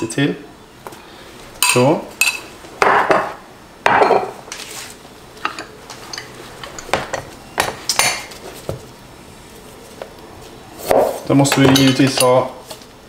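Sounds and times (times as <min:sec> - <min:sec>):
kitchen utensils clicking and knocking: 0:11.4 - 0:12.4.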